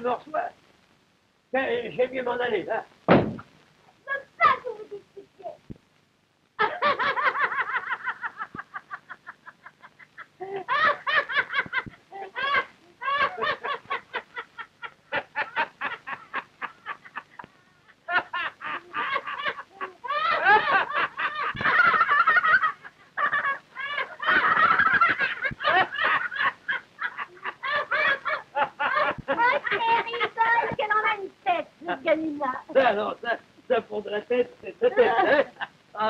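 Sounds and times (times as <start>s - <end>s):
man laughing heartily: 6.6s - 29.8s, 34.8s - 35.7s.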